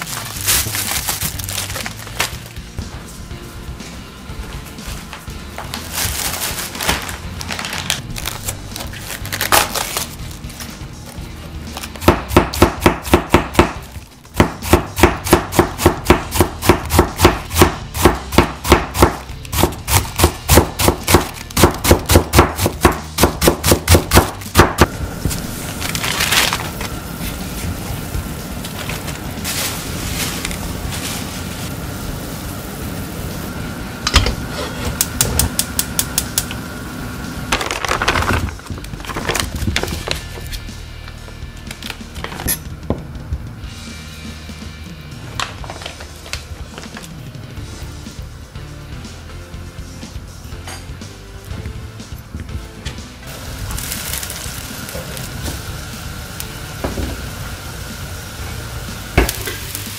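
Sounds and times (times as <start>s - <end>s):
knife chopping cabbage on board: 12.0s - 24.9s.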